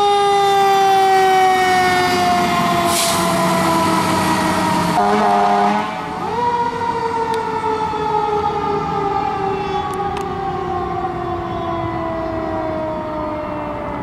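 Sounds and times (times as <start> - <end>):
mechanical siren winding down: 6.2 - 14.0.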